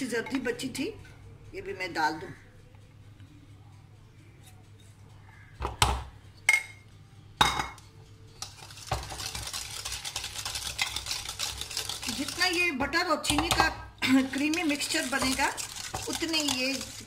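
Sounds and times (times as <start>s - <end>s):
whisk scraping ceramic bowl: 8.4s - 17.0s.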